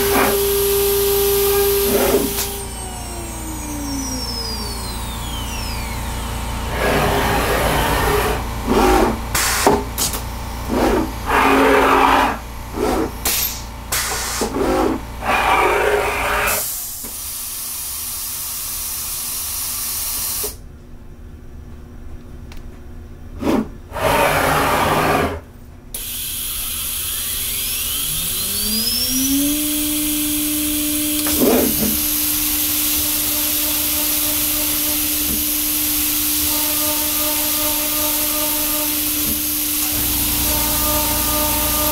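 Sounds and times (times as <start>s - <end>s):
router spindle whine: 0.0s - 9.3s, 26.0s - 41.9s
low hum: 39.9s - 41.9s.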